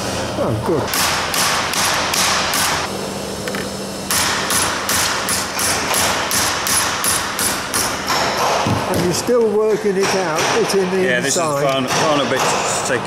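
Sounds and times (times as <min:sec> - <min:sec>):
hammer striking metal: 0:00.9 - 0:02.9, 0:04.1 - 0:11.0, 0:11.7 - 0:13.0.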